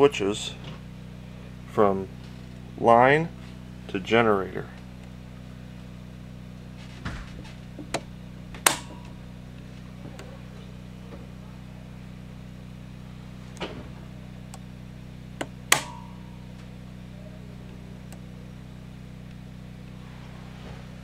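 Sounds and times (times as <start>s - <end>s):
steady low hum: 0.0s - 21.0s
rocker switches clicking: 7.8s - 9.2s, 15.4s - 16.2s
loud switch snaps: 7.9s - 9.2s, 15.4s - 16.2s.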